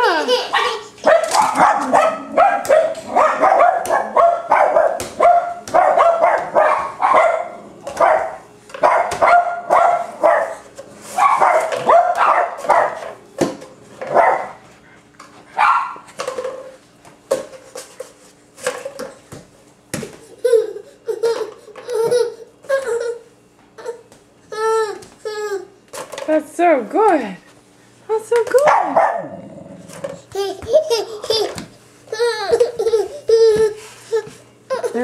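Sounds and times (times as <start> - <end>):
dog barking: 0.6 - 10.6, 11.2 - 13.0, 14.1 - 14.6, 15.6 - 16.0, 28.6 - 29.3.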